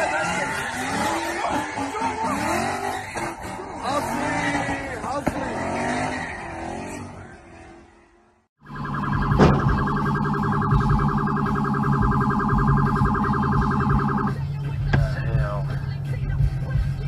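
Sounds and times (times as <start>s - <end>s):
vehicle noise: 0.0s - 17.0s.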